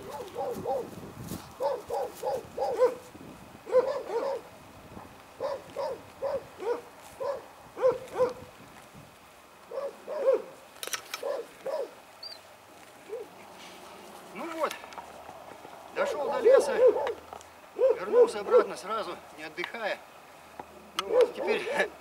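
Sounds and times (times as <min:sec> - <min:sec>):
dog barking: 0:00.1 - 0:00.9, 0:01.6 - 0:03.0, 0:03.7 - 0:04.5, 0:05.4 - 0:08.4, 0:09.7 - 0:10.6, 0:11.2 - 0:12.0, 0:16.0 - 0:17.2, 0:17.8 - 0:18.8, 0:21.0 - 0:21.8
sharp click: 0:10.8 - 0:11.3.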